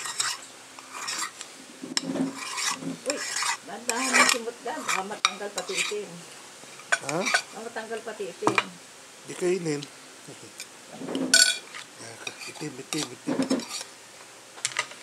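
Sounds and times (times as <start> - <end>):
metal spoon scraping a pan: 0.0 - 6.1, 6.8 - 8.7, 10.6 - 13.9.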